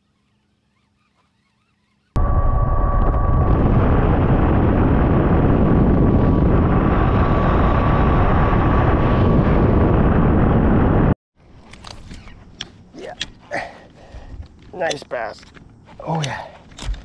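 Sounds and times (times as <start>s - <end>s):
high motor whine: 2.2s - 11.2s.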